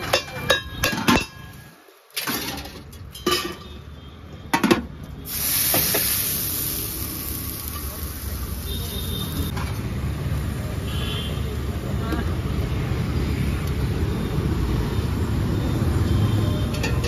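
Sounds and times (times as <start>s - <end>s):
steady hiss: 5.2s - 9.5s.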